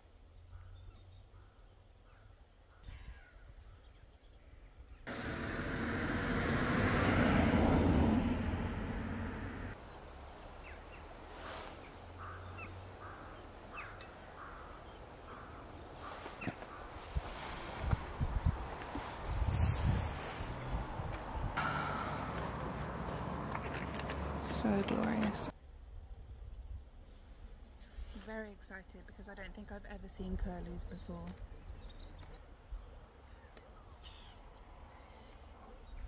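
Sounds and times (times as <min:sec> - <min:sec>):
faint bird calls: 0:00.5 - 0:04.1, 0:09.8 - 0:25.5
loud rushing noise: 0:05.1 - 0:13.4, 0:16.0 - 0:25.5.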